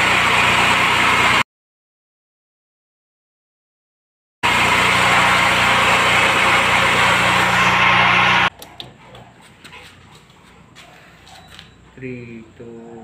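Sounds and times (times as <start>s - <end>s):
diesel generator running: 0.0s - 1.4s, 4.4s - 9.1s.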